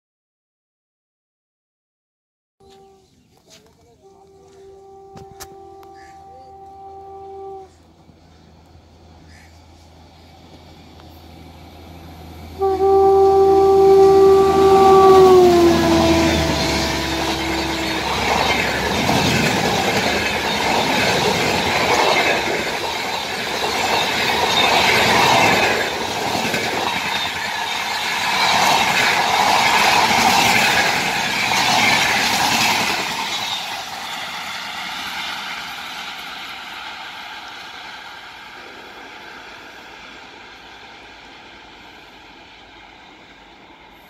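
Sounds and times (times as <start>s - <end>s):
locomotive horn two-note blast: 2.6s - 3.2s, 4.0s - 7.9s, 12.5s - 21.0s
train wheels on rails: 2.6s - 44.0s.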